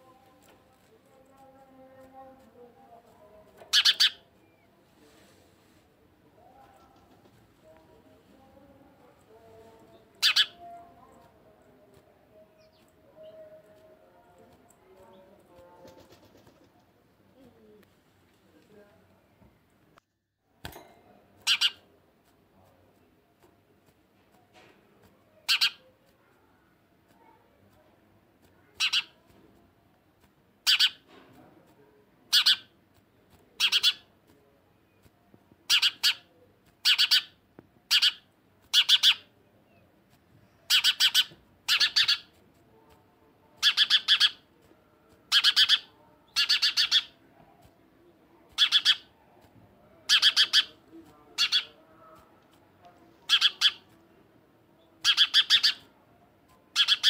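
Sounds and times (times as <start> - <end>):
sparrow chirping: 1.4 - 4.8, 8.4 - 13.9, 21.4 - 21.8, 25.4 - 26.0, 28.7 - 29.2, 30.6 - 31.1, 32.3 - 32.8, 33.6 - 34.1, 35.6 - 42.4, 43.6 - 44.5, 45.3 - 47.2, 48.5 - 49.2, 50.0 - 51.8, 53.2 - 54.0, 54.8 - 55.9, 56.7 - 57.0.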